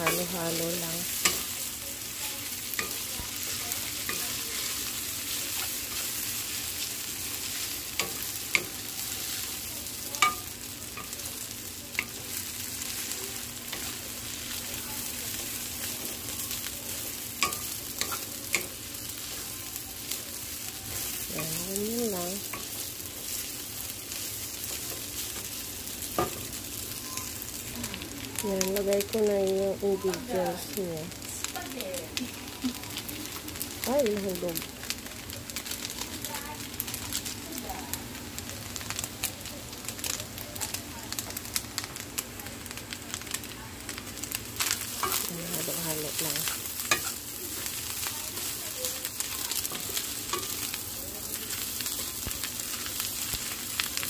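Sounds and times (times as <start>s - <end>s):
food sizzling in frying pan: 0.0s - 54.0s
spatula tapping pan: 10.1s - 11.2s, 15.9s - 18.8s, 24.4s - 26.5s, 46.4s - 50.8s.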